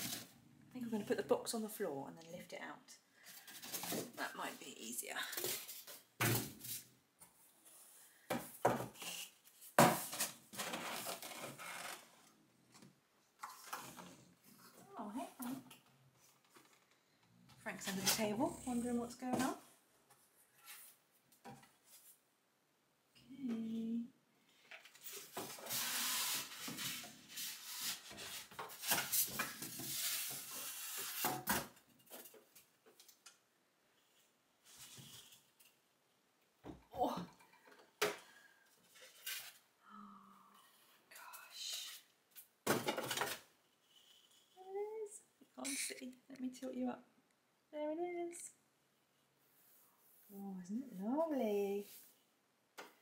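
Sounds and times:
packaging rustling and scraping: 9.2 - 12.1, 25.0 - 31.5.

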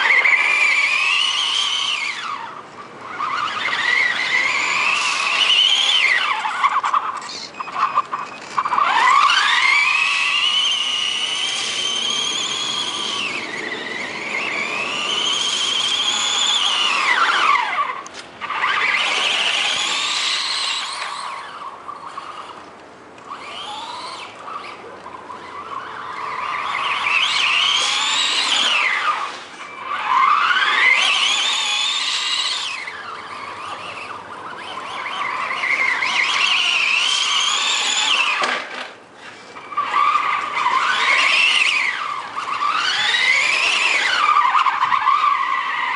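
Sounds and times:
toy truck motor whining: 0.0 - 45.9.

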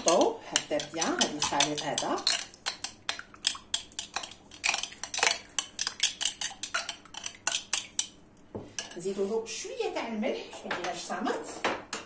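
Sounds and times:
utensil clinking against ceramic bowl: 0.0 - 9.0.

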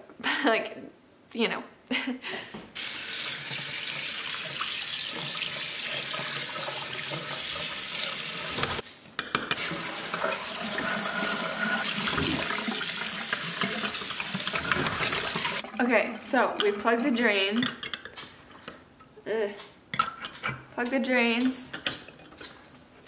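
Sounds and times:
faucet water running into sink: 2.8 - 8.8, 9.6 - 17.3.

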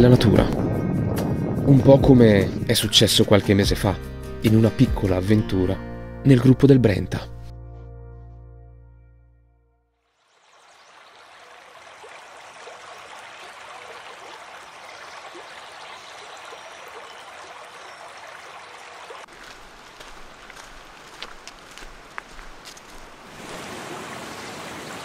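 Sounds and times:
stream water rushing: 10.2 - 25.0.

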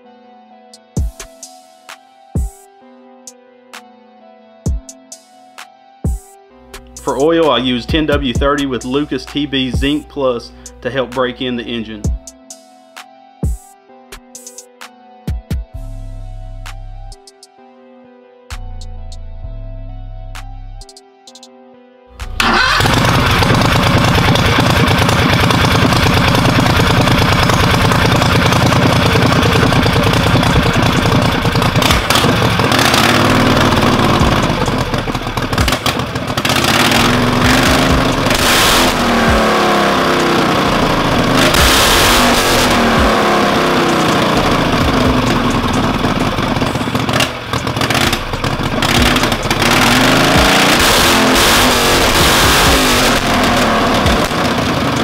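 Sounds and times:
engine revving through open headers: 22.2 - 55.0.

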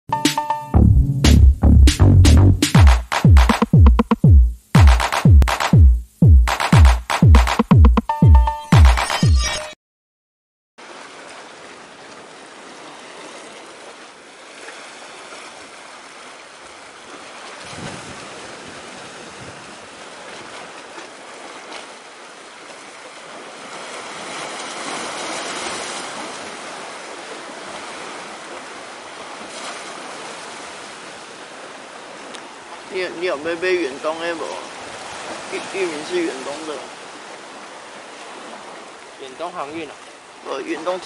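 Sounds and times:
sea waves washing in: 10.8 - 41.0.

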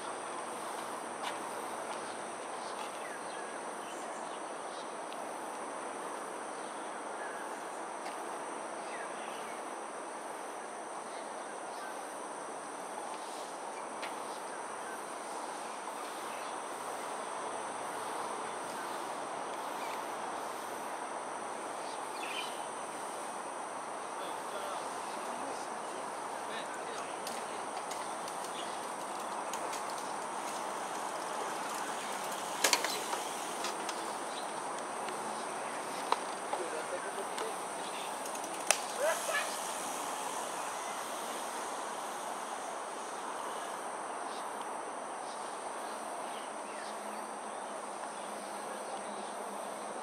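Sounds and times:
crickets and insects trilling: 0.0 - 50.0.

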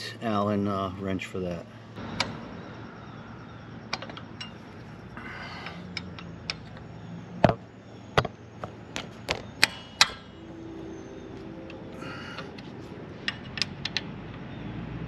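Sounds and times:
allen wrenches clinking: 3.9 - 7.0, 9.0 - 10.4.

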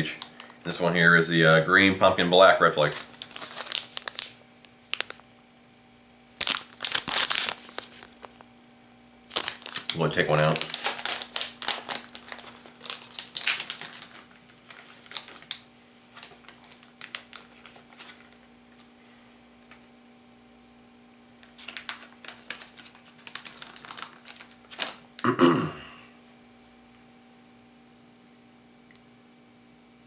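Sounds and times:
plastic bag crinkling: 0.0 - 0.8, 2.8 - 5.2, 6.4 - 8.5, 9.3 - 18.9, 21.4 - 25.2.

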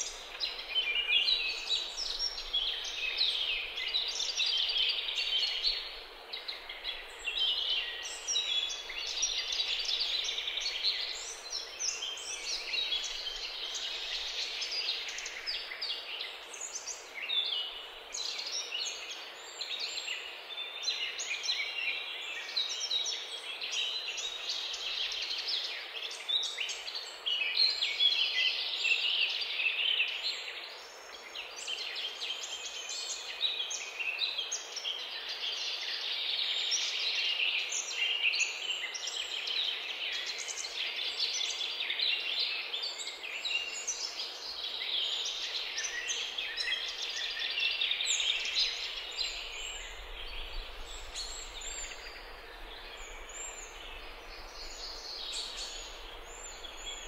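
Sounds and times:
small birds chirping: 0.0 - 57.0.

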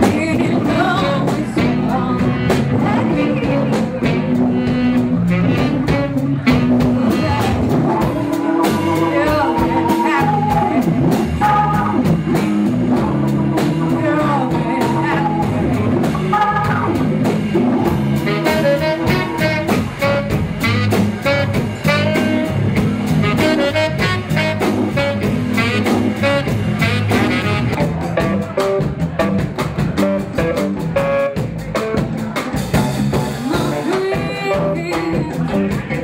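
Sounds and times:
drum kit beat: 0.0 - 36.0
electric bass: 0.0 - 36.0
tenor saxophone: 0.1 - 28.0.

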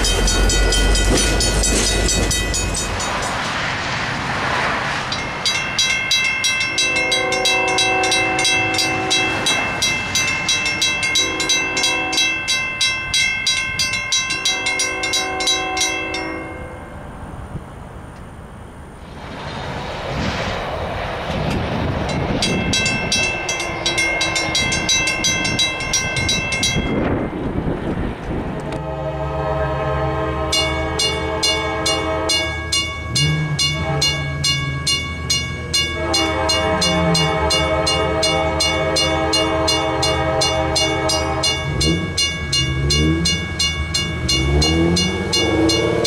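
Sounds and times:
railroad crossing bell ringing: 0.0 - 3.8, 5.0 - 17.4, 21.5 - 27.8, 28.6 - 46.0
rushing noise: 0.0 - 12.7, 15.9 - 37.7
train horn blasts: 6.6 - 9.9, 10.5 - 12.5, 14.3 - 16.8, 28.6 - 34.8, 35.6 - 42.2.

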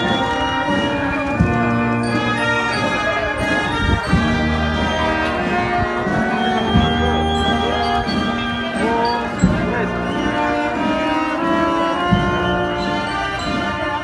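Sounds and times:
drum strokes: 0.0 - 14.0
held brass chords: 0.0 - 14.0
deep bass notes: 4.0 - 10.4.

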